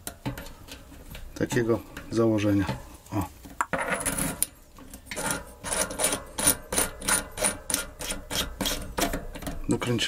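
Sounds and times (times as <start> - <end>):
metal scrape: 3.7 - 10.0.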